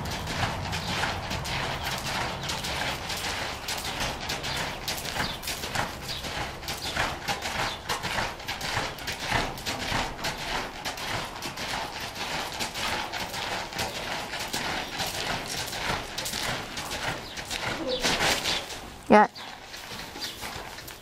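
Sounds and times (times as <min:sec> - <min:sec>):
horse hoofbeats on sand: 0:00.0 - 0:21.0.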